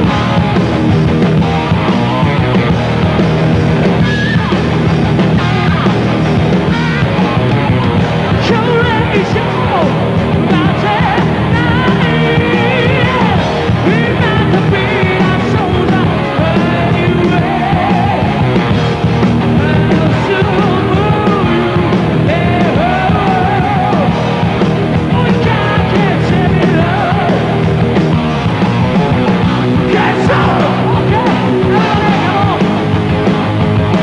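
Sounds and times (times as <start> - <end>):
heavy metal band playing: 0.0 - 34.0
singer belting vocals: 6.8 - 34.0.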